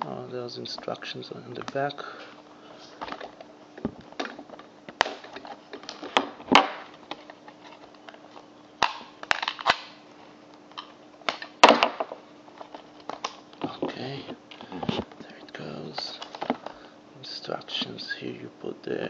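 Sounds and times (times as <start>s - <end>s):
plastic packaging snapping and crinkling: 2.8s - 16.8s.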